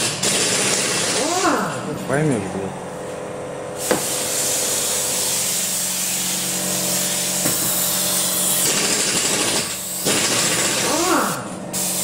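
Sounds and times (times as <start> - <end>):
aerosol can spraying: 3.8 - 8.8, 11.2 - 12.0.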